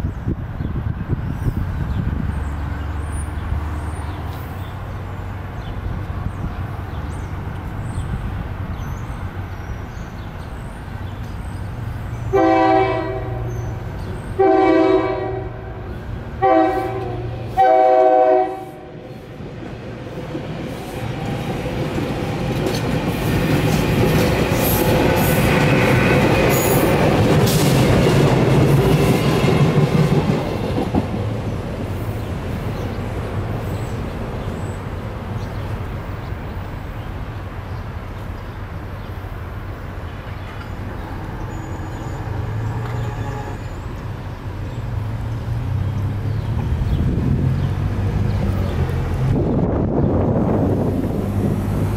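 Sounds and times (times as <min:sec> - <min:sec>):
electric train rumbling past: 0:00.0 - 0:51.9
train horn: 0:12.3 - 0:13.7, 0:14.4 - 0:19.1, 0:42.4 - 0:43.9.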